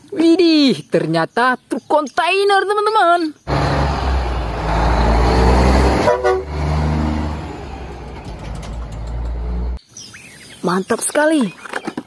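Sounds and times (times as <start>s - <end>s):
truck horn blast: 3.5s - 7.6s
diesel truck engine rumbling: 3.5s - 9.8s.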